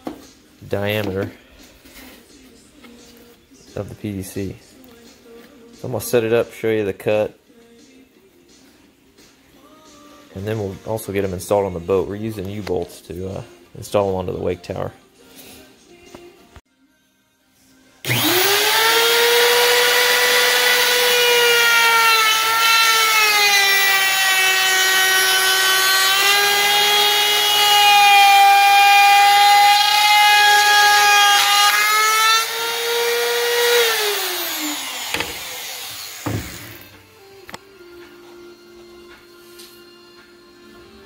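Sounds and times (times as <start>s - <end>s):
trim router whining: 18.0s - 37.1s.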